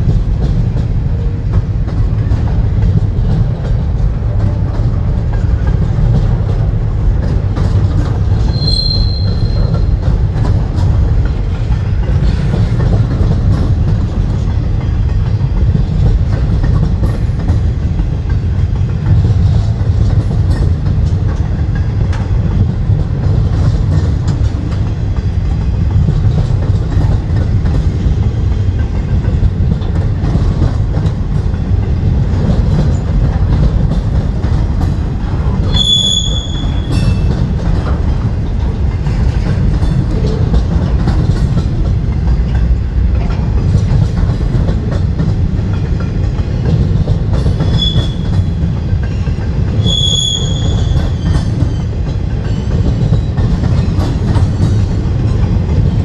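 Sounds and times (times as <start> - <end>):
train wheels rumbling on rails: 0.0 - 56.0
wheel squeal: 8.4 - 9.9, 35.7 - 37.3, 47.6 - 48.4, 49.8 - 51.9.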